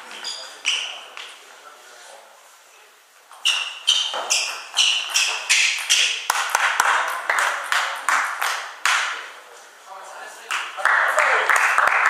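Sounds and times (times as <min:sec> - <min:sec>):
table tennis ball hits: 0:03.5 - 0:09.1.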